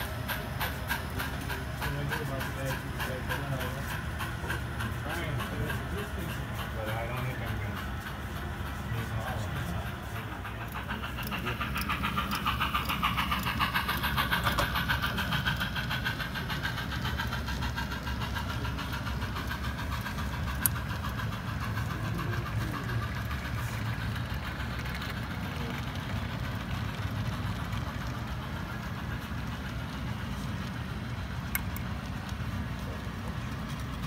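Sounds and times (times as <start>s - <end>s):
model train wheels clicking: 0.0s - 34.0s.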